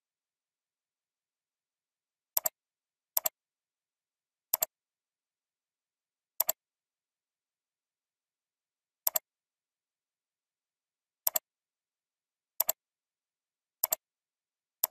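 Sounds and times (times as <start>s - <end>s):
computer mouse clicking: 2.4s - 2.6s, 3.2s - 3.4s, 4.5s - 4.7s, 6.4s - 6.6s, 9.1s - 9.3s, 11.3s - 11.5s, 12.6s - 12.8s, 13.8s - 14.0s.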